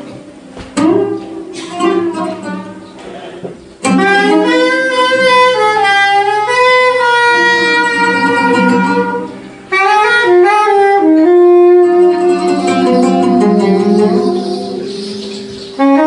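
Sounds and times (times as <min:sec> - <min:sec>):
jazz band playing: 0:00.0 - 0:16.0
saxophone melody: 0:03.8 - 0:16.0.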